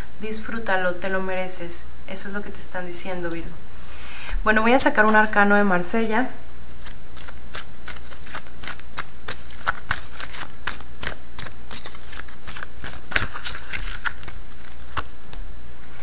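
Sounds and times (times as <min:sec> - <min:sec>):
cards being shuffled: 0:06.8 - 0:16.0.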